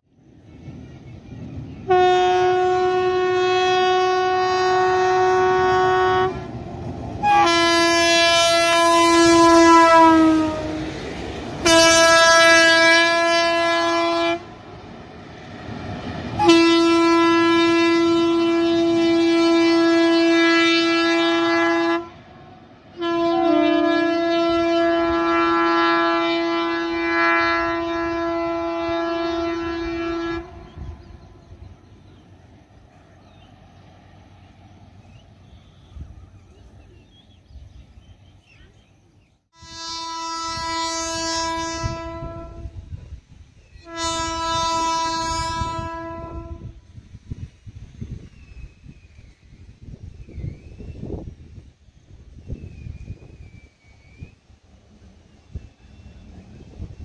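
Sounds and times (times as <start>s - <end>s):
locomotive horn blasts: 1.8s - 14.5s, 15.7s - 31.4s, 39.5s - 42.9s, 43.8s - 46.9s.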